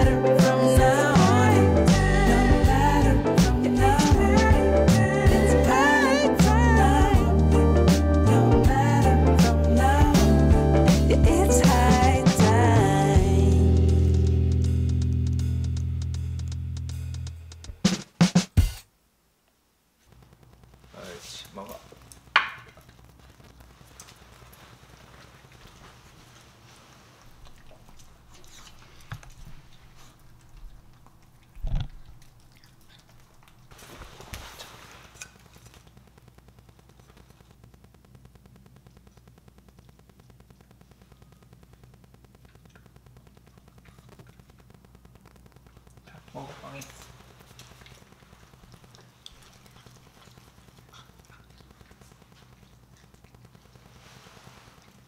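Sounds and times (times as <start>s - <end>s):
dog chewing: 21.7s - 36.2s, 46.6s - 55.0s
steady low hum: 35.1s - 55.0s.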